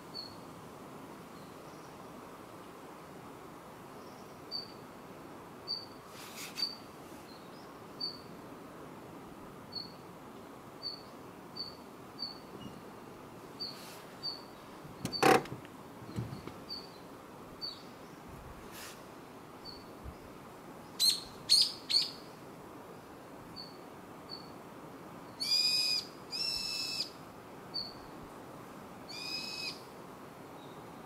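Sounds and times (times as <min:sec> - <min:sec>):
steady outdoor hiss: 0:00.0 - 0:31.0
small bird chirping: 0:05.7 - 0:08.3, 0:10.8 - 0:12.8, 0:13.6 - 0:15.4, 0:16.0 - 0:18.2, 0:19.6 - 0:20.3, 0:20.9 - 0:22.2.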